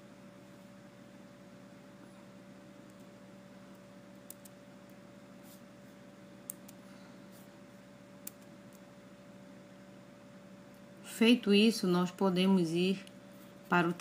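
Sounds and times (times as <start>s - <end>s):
low electrical hum and hiss: 0.0s - 14.0s
computer mouse clicks: 3.7s - 4.6s, 6.5s - 6.8s, 8.2s - 8.8s.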